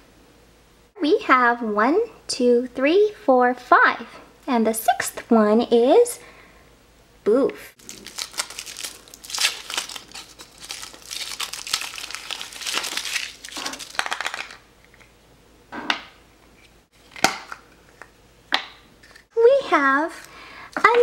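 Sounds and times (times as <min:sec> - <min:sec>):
foil wrapper crinkling: 0:07.8 - 0:15.0.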